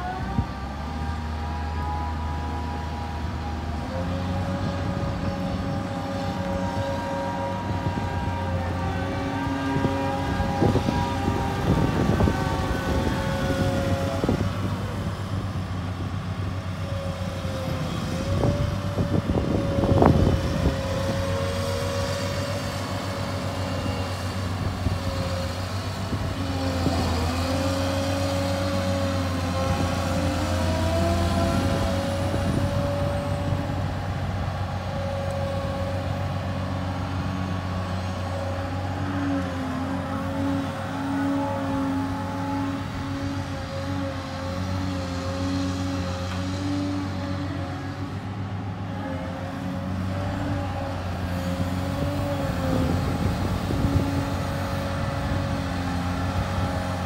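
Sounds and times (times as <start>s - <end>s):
excavator diesel engine running: 0.0s - 57.0s
hydraulic whine: 0.0s - 57.0s.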